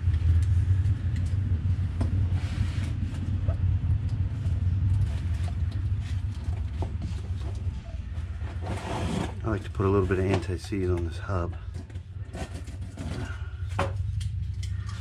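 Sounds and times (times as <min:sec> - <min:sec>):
steady low rumble: 0:00.0 - 0:15.0.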